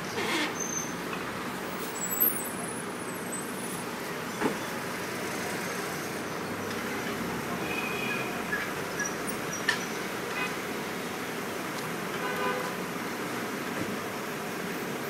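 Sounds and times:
city street traffic: 0:00.0 - 0:15.0
car horn toot: 0:07.6 - 0:08.6, 0:10.3 - 0:10.6.

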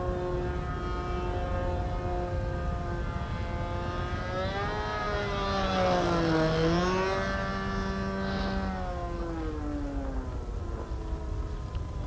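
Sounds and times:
model plane engine overhead: 0:00.0 - 0:12.0.

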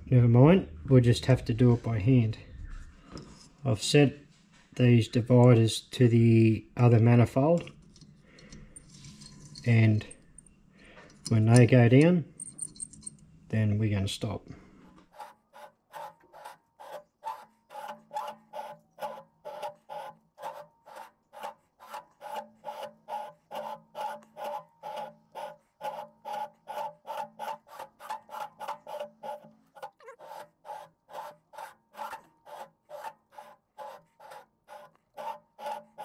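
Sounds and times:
cutting tool rasping scrape: 0:15.1 - 0:36.0.

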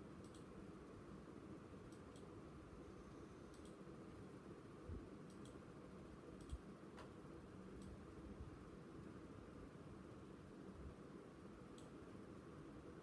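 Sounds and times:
faint sharp clicks: 0:00.2 - 0:00.5, 0:01.9 - 0:02.3, 0:03.5 - 0:03.8, 0:05.3 - 0:05.6, 0:06.4 - 0:07.1, 0:11.7 - 0:12.0.

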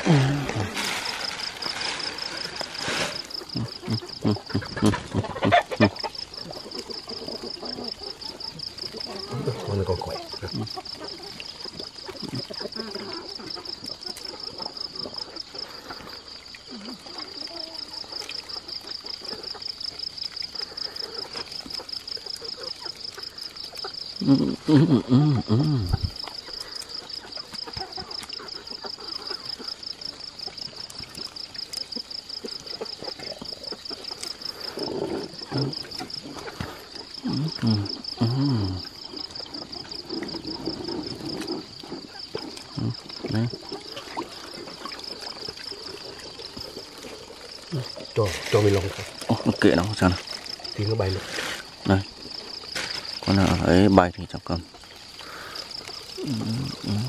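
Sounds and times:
insect chirping trill: 0:00.0 - 0:57.0
voices: 0:07.6 - 0:11.2, 0:47.7 - 0:52.1, 0:56.2 - 0:57.0.

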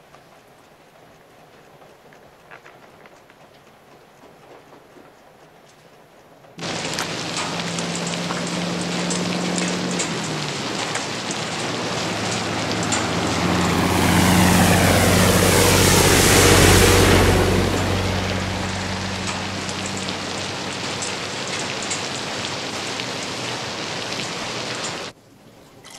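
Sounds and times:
truck engine: 0:06.6 - 0:25.1
heavy rain: 0:06.6 - 0:25.2
tyres hissing on wet road: 0:06.6 - 0:25.2.

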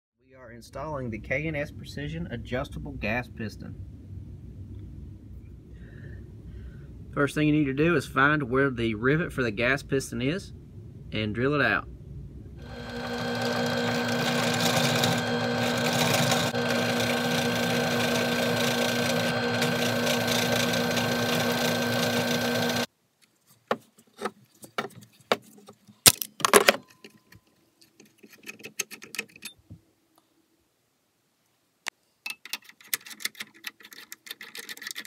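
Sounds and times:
drill press running: 0:12.6 - 0:22.9
metallic clicks and knocks: 0:26.1 - 0:29.6.

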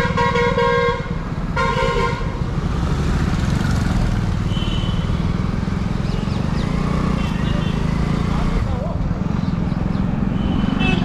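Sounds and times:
vehicle horn honking: 0:00.0 - 0:02.3, 0:04.5 - 0:05.2, 0:10.4 - 0:11.0
road noise: 0:00.0 - 0:11.0.

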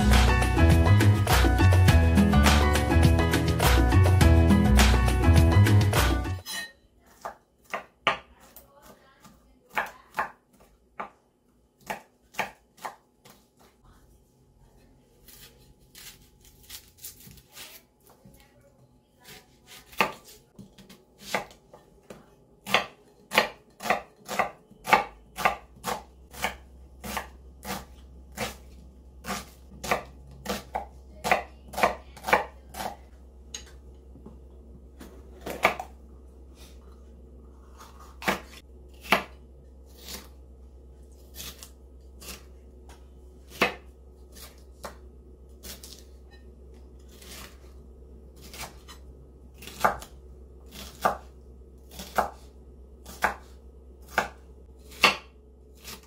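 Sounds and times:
knife chopping on cutting board: 0:06.4 - 0:11.2, 0:11.8 - 0:13.7, 0:19.2 - 0:33.7, 0:35.0 - 0:36.0, 0:37.7 - 0:39.4, 0:41.3 - 0:46.1, 0:48.4 - 0:49.0, 0:49.6 - 0:50.1, 0:50.7 - 0:51.3, 0:51.9 - 0:56.0.

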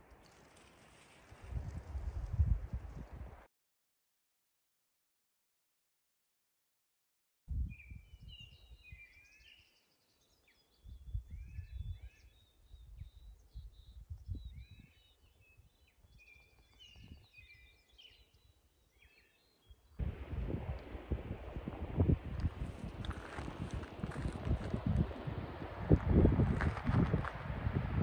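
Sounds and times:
wind rumble on microphone: 0:00.6 - 0:03.5, 0:07.5 - 0:09.2, 0:10.8 - 0:18.2, 0:20.0 - 0:28.0
songbirds chirping and warbling: 0:07.7 - 0:20.0.

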